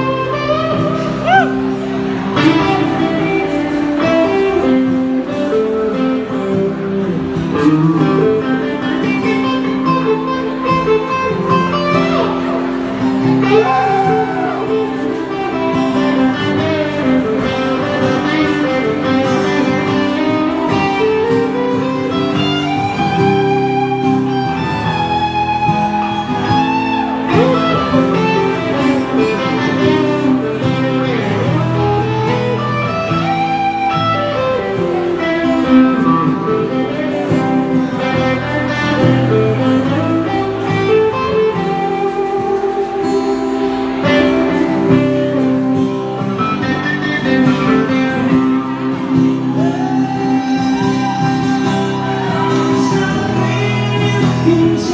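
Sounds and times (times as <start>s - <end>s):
electric guitar lead with bent notes: 0.0s - 54.9s
strummed acoustic guitar: 0.0s - 54.9s.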